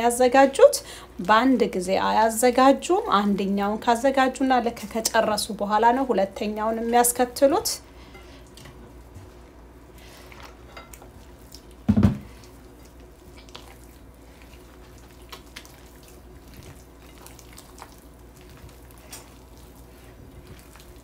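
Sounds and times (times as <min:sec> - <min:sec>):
hands kneading wet dough: 0:08.4 - 0:21.0.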